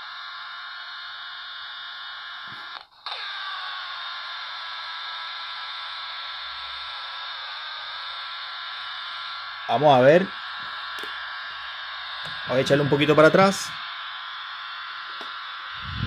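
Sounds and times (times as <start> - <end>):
radio static hiss: 5.2 - 16.0.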